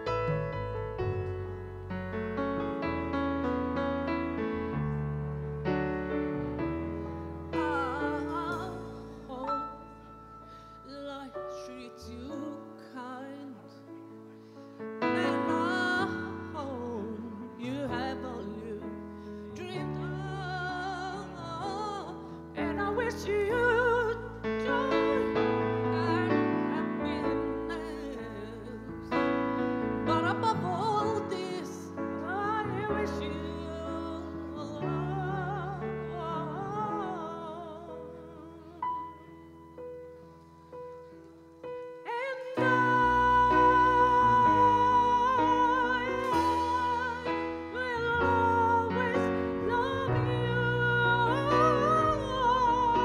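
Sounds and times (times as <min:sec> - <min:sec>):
bass notes: 0:00.0 - 0:09.4
person singing with vibrato: 0:07.3 - 0:13.9, 0:15.0 - 0:39.3, 0:42.0 - 0:53.0.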